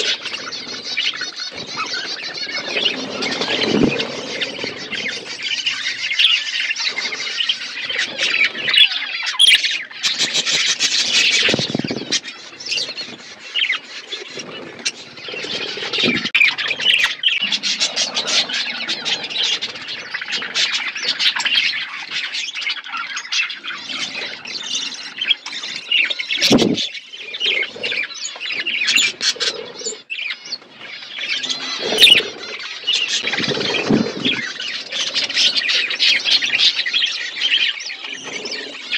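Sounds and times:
budgerigars chattering and chirping: 0:00.0 - 0:38.9.

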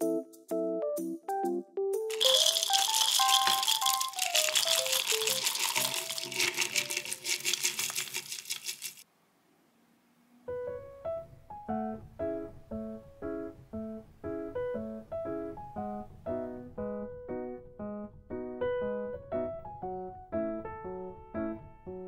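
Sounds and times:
granola clattering into wooden bowl: 0:02.1 - 0:09.0.

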